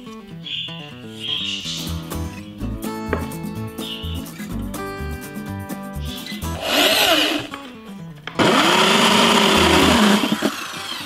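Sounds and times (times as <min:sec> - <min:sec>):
background music: 0:00.0 - 0:10.4
electric drill hole saw cutting wood: 0:06.5 - 0:07.6, 0:08.4 - 0:11.0.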